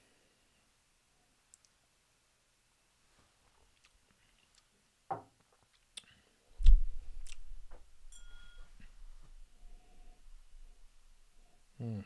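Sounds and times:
low rumble: 6.6s - 8.2s
mouth sounds: 11.8s - 12.0s.

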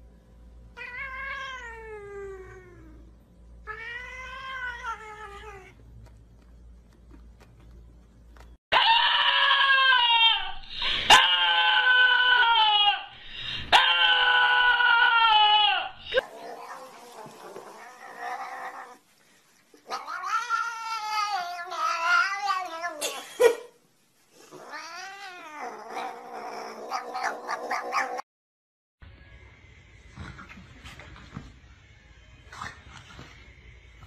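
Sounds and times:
dog howling: 13.7s - 19.0s.

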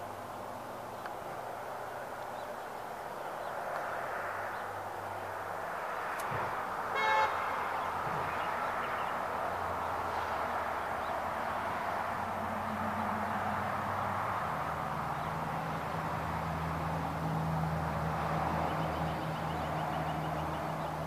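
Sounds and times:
road traffic noise: 0.0s - 21.0s
car horn toot: 6.9s - 7.6s.

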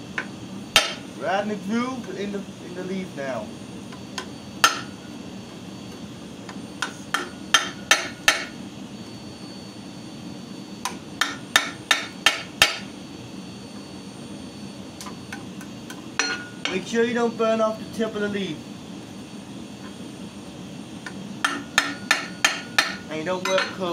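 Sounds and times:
hammer striking chisel ringing: 0.8s - 1.0s, 4.6s - 4.9s, 6.8s - 8.5s, 11.2s - 12.8s, 16.2s - 16.8s, 21.4s - 23.9s.

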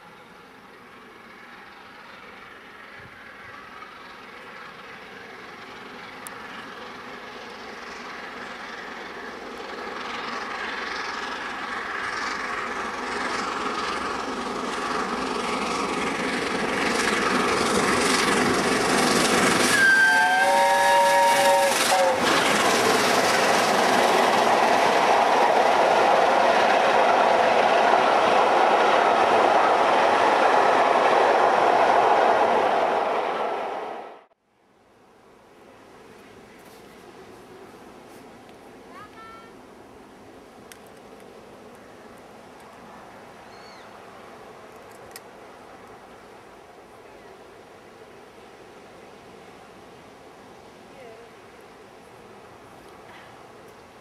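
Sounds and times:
steam locomotive approaching: 0.0s - 54.0s
steam whistle: 19.6s - 22.4s.

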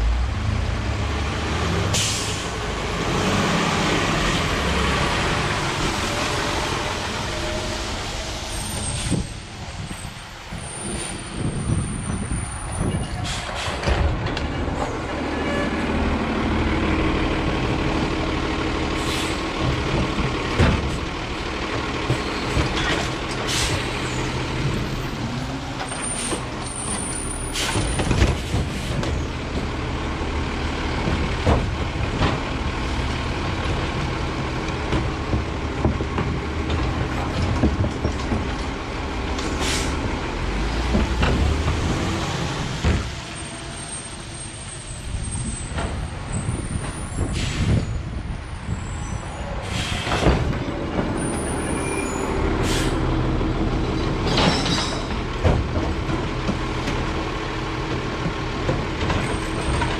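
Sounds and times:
air brake hisses: 2.0s - 2.5s, 19.0s - 19.4s, 39.6s - 40.0s, 47.3s - 48.0s, 49.6s - 50.3s, 52.6s - 53.0s
diesel truck engine running: 13.7s - 49.0s, 49.6s - 54.3s.

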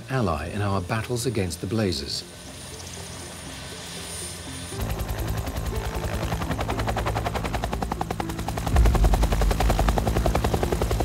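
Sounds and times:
helicopter engine rumble: 0.0s - 11.0s
helicopter rotor chopping: 0.0s - 11.0s.

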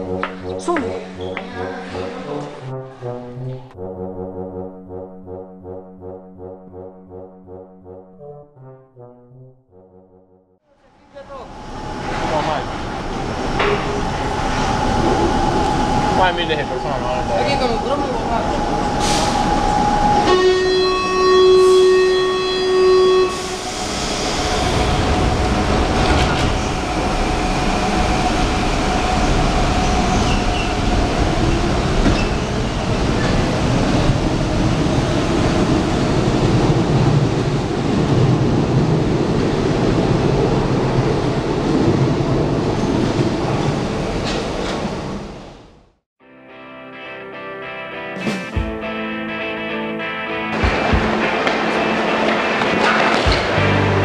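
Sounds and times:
train horn: 20.0s - 24.4s
train wheels rumbling on rails: 23.4s - 45.6s.

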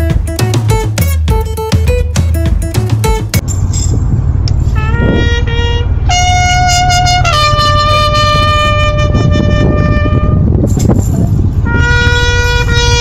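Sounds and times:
wind rumble on microphone: 3.4s - 13.0s
horn-like wind instrument notes: 4.6s - 10.7s, 11.6s - 13.0s.

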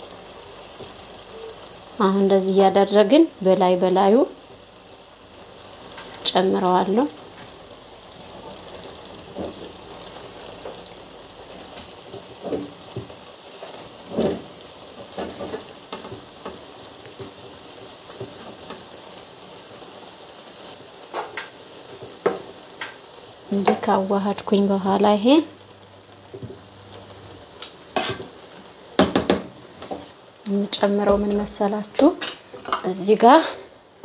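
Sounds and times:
chicken sizzling in a pot: 0.0s - 34.0s.

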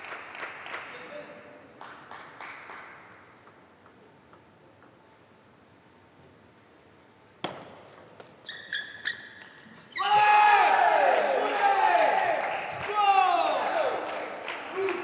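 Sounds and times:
table tennis ball tapping: 3.4s - 5.1s
table tennis serve crack: 7.4s - 8.4s
sneaker squeaks: 7.4s - 10.2s.

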